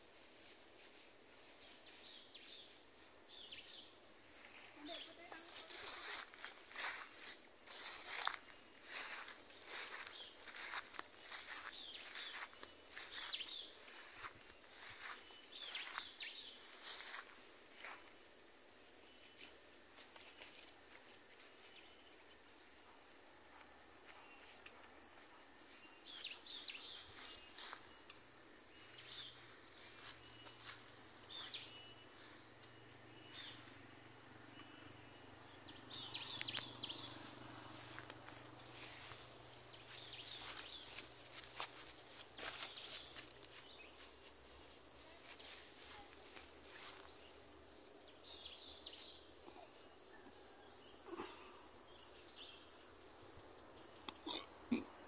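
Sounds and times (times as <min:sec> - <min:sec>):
short insect chirps: 0:00.0 - 0:55.0
footsteps through tall grass: 0:04.3 - 0:18.2, 0:23.6 - 0:32.7, 0:36.6 - 0:47.4
high-pitched insect drone: 0:25.5 - 0:50.7.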